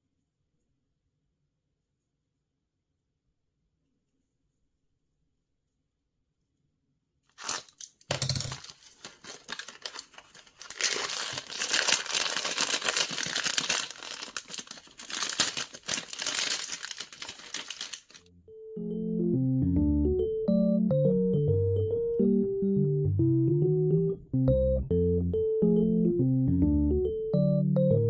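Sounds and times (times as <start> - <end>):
foil wrapper tearing and crinkling: 7.3 - 18.3.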